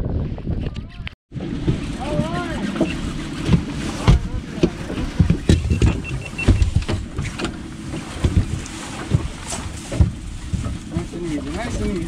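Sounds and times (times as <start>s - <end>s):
wind buffeting microphone: 0.0s - 12.0s
water slapping boat hull: 0.2s - 12.0s.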